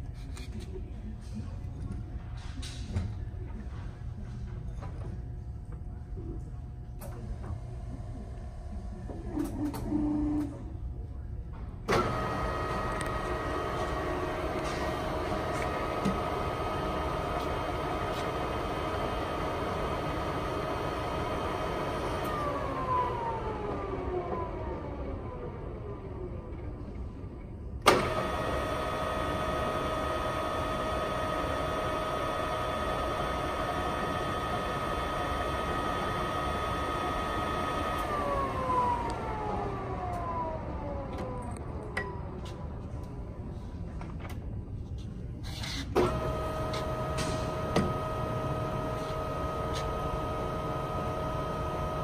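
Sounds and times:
drill motor switching on clunk: 0:27.9 - 0:39.3, 0:46.0 - 0:52.0.

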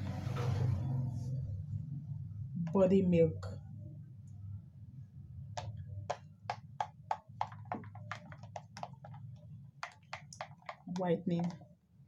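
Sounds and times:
plastic spoon clicking in bowl: 0:05.6 - 0:09.2, 0:09.8 - 0:11.6.

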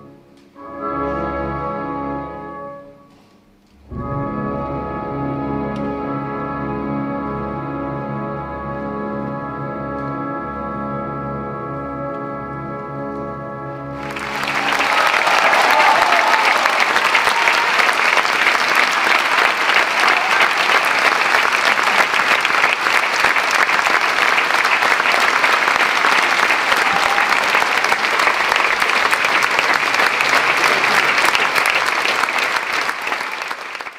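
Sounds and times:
audience applauding: 0:14.0 - 0:33.9.

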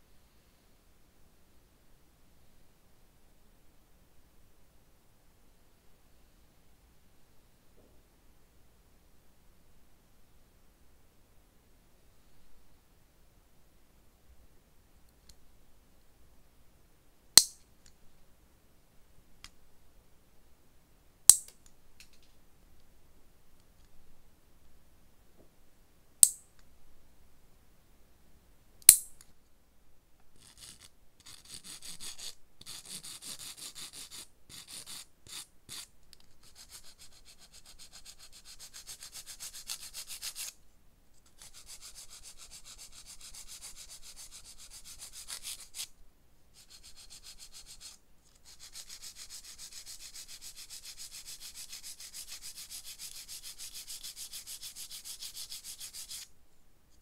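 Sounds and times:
nail file rasping on plastic: 0:30.4 - 0:40.6, 0:41.3 - 0:45.9, 0:46.6 - 0:56.3.

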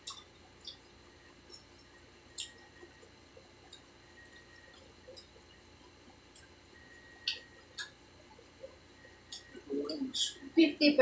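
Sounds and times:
lip smacks: 0:00.0 - 0:00.8, 0:07.2 - 0:08.0
mouth chewing: 0:00.0 - 0:10.4.

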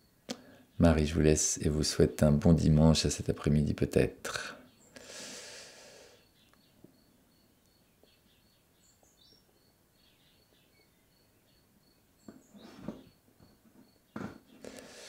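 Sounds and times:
higher bird chirps: 0:04.5 - 0:15.0
cricket or bird chirping: 0:04.6 - 0:15.0.

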